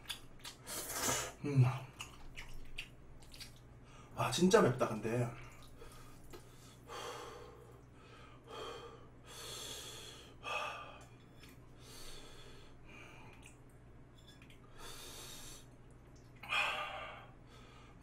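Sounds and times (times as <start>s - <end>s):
man breathing hard hissing: 6.5s - 11.0s, 11.8s - 13.1s, 14.8s - 15.7s.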